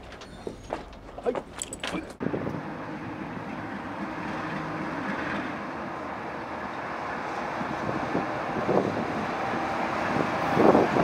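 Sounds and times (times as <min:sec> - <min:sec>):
train rumbling: 0:00.0 - 0:11.0.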